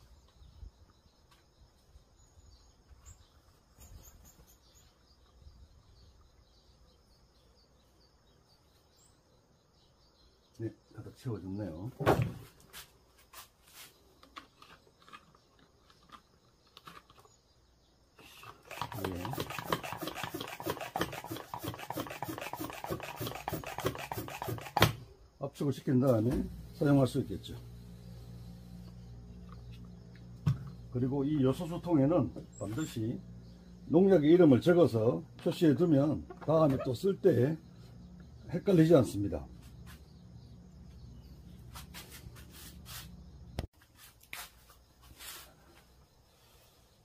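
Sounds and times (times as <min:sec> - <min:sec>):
hand pump sprayer rasping strokes: 0:18.2 - 0:25.0
low background hum: 0:26.1 - 0:43.7.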